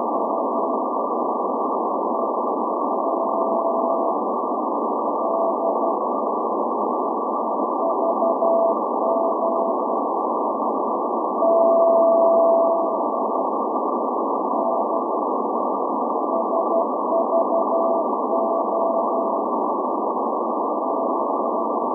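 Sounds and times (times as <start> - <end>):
radio static: 0.0 - 21.9
morse code tone: 7.8 - 9.8, 11.4 - 13.0, 16.3 - 19.4.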